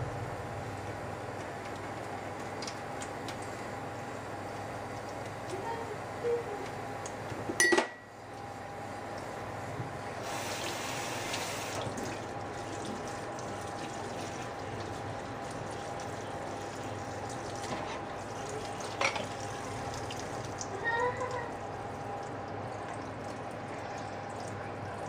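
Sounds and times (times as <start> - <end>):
faucet running into steel sink: 10.2 - 25.0.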